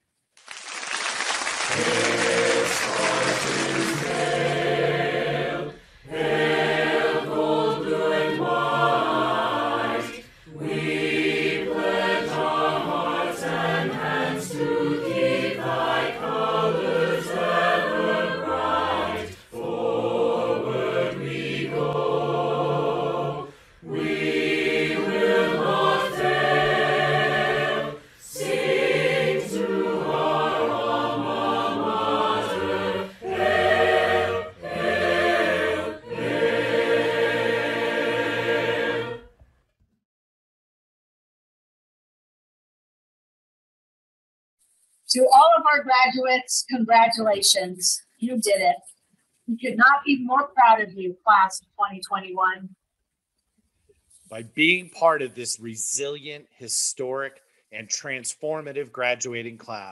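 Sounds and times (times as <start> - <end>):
mixed choir singing: 1.7 - 39.4.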